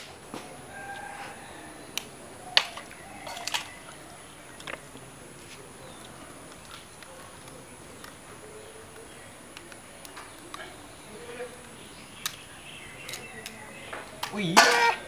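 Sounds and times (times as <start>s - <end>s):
insects droning: 0.0s - 15.0s
faint clicks: 8.9s - 10.8s, 11.5s - 14.4s.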